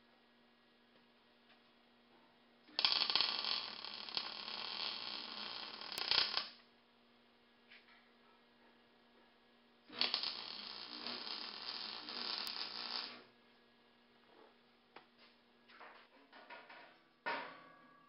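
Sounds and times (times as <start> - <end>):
faint electrical hum: 0.0 - 18.0
arc welding crackling hiss: 2.7 - 6.6, 9.9 - 13.3.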